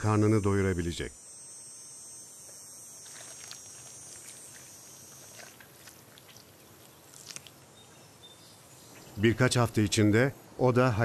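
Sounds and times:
bird bill ticks and feather rustles: 3.0 - 8.1.

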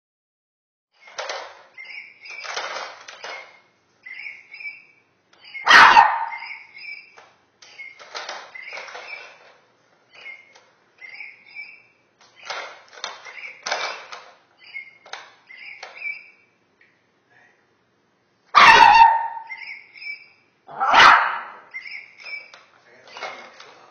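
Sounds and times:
plastic balls rattling in toy: 1.0 - 3.6, 7.6 - 9.6, 12.2 - 14.4.

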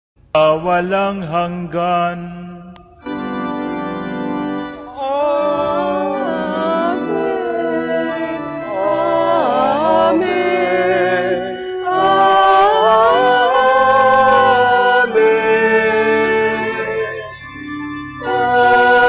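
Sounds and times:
organ accompaniment: 0.4 - 19.0
choir singing a hymn off key: 3.7 - 17.6, 18.2 - 19.0.

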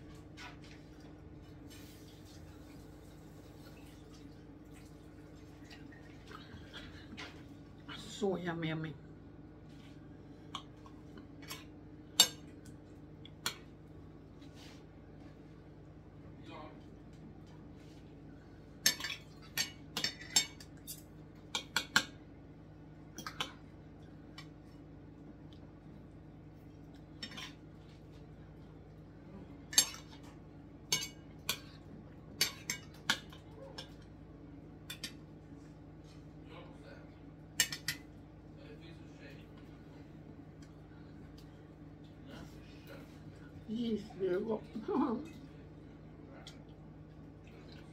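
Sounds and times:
cutlery clinking on a plate: 37.6 - 38.1.

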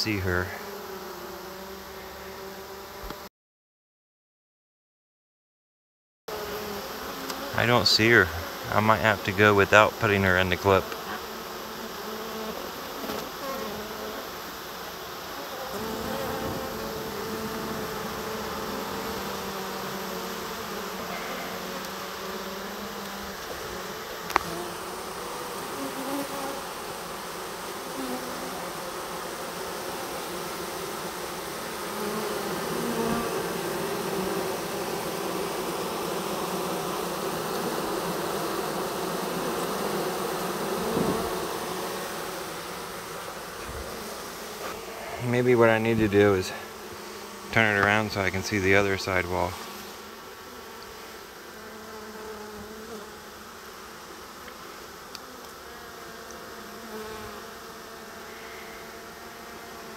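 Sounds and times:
honey bees buzzing: 0.0 - 3.3, 6.3 - 59.9.

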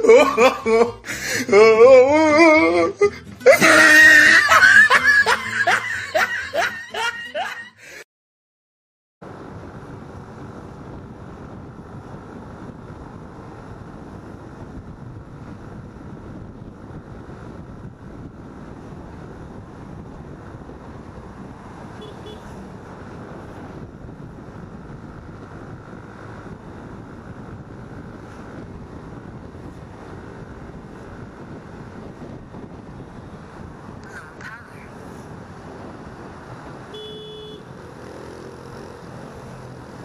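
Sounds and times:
wind rushing over microphone: 9.2 - 37.0
motorcycle engine and road noise: 9.2 - 40.0.

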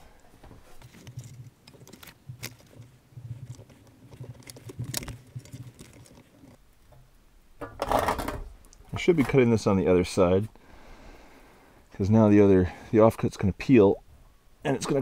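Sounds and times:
metallic clicks and scrapes: 0.6 - 7.0.

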